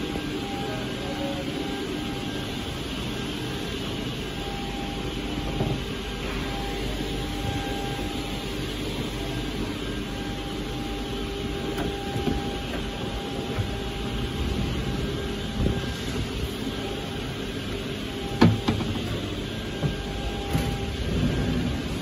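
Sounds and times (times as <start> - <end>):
mechanical rumble with hum: 0.0 - 22.0
cabinet drawers and doors knocking: 18.4 - 19.1.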